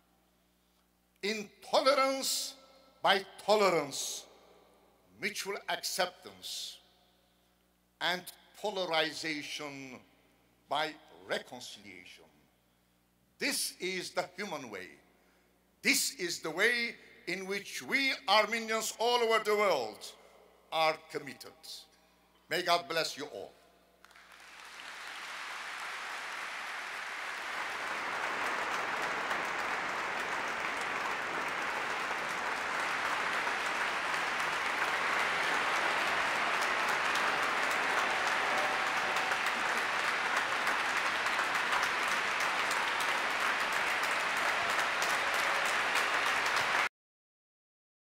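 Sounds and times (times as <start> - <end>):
large audience applauding: 24.0 - 46.9.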